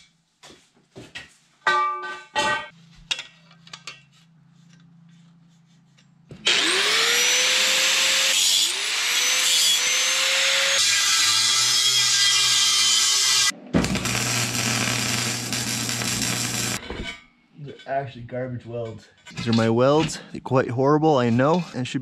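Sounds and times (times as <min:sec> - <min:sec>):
angle grinder whine: 0:06.4 - 0:16.8
grinder cutting steel: 0:06.4 - 0:16.8.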